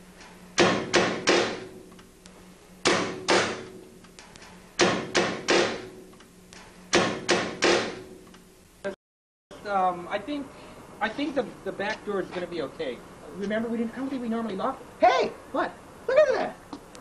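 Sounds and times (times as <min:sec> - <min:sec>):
pounding on wooden door: 0:00.6 - 0:01.8, 0:02.8 - 0:03.8, 0:04.8 - 0:06.0, 0:06.9 - 0:08.2.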